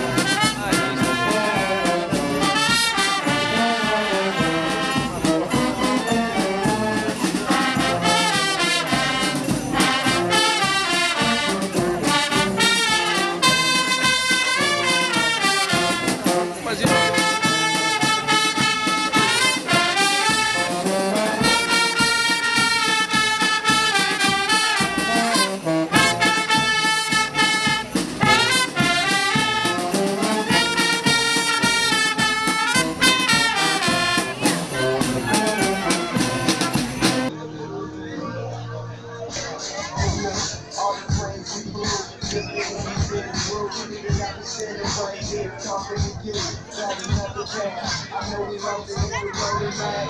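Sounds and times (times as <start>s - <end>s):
brass band playing: 0.0s - 37.4s.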